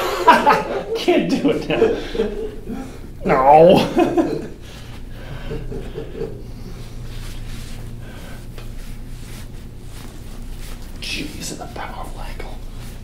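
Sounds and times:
low electrical hum: 0.0s - 13.0s
faint breathing: 4.6s - 9.6s.

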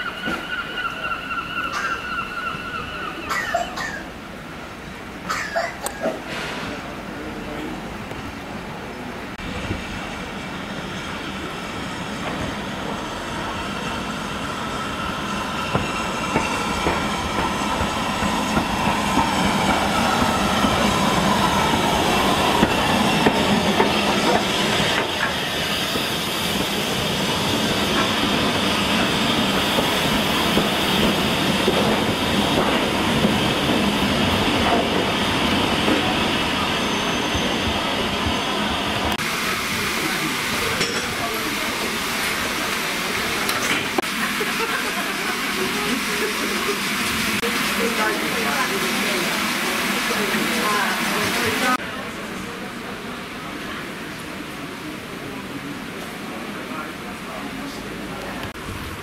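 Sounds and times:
train wheels rumbling: 0.0s - 59.0s
steam hissing: 11.1s - 51.8s
brief wheel squeals: 36.6s - 38.7s.

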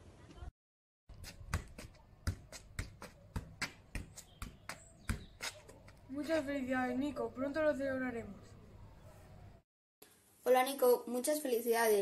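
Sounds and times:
football being kicked: 1.4s - 5.5s.

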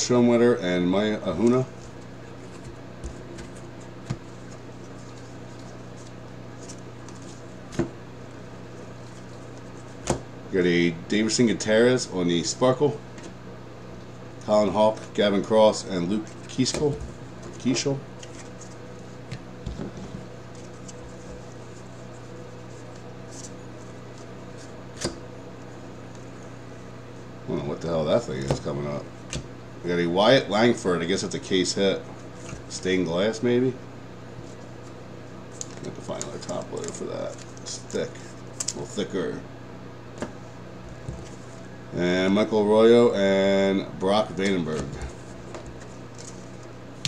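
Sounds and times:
steady low hum: 0.0s - 47.0s
trading cards flipped and handled: 1.4s - 7.9s, 16.2s - 25.2s, 34.4s - 38.9s.

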